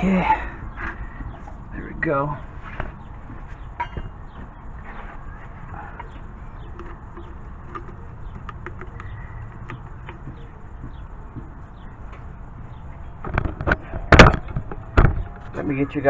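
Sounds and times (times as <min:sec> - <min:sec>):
faint bird calls: 0:04.3 - 0:12.0.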